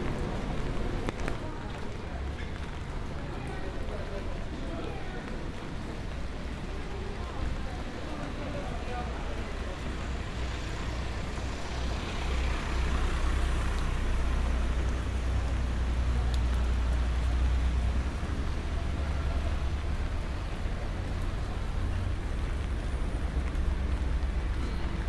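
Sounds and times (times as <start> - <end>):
rain and wet road hiss: 0.0 - 25.0
passing car engines rumbling: 8.2 - 25.0.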